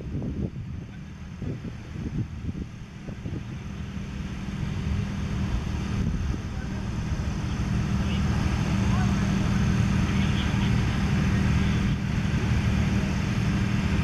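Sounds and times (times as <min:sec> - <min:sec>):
low engine-like hum: 0:00.0 - 0:14.0
faint voices: 0:06.1 - 0:14.0.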